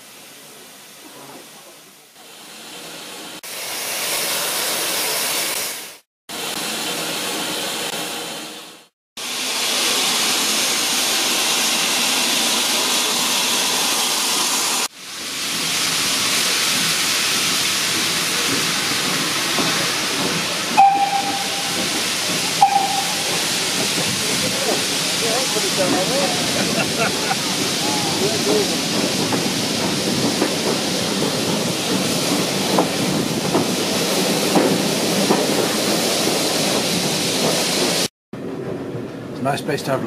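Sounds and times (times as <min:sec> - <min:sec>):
steam locomotive hissing: 0:00.0 - 0:38.1
steam whistle: 0:20.8 - 0:21.9, 0:22.6 - 0:23.5.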